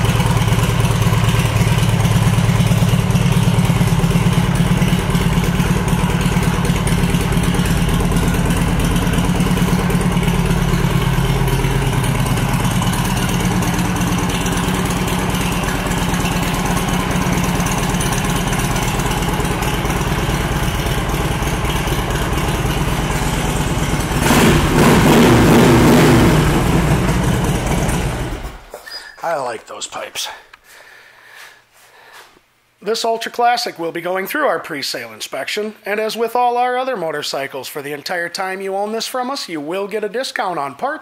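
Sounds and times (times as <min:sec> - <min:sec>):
motorcycle engine idling and revving: 0:00.0 - 0:28.7.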